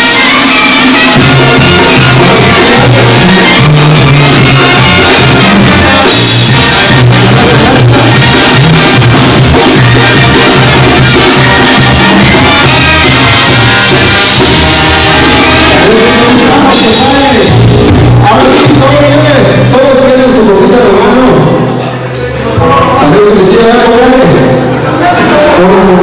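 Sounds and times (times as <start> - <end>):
drum kit: 0.0 - 19.7
trumpets: 0.0 - 20.0
sousaphone bass line: 0.0 - 21.6
brass band playing loudly: 0.0 - 26.0
man singing into a microphone: 1.6 - 12.5.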